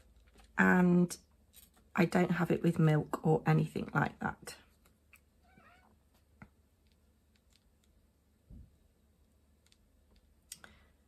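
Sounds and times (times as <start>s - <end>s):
cat calling: 5.4s - 5.9s.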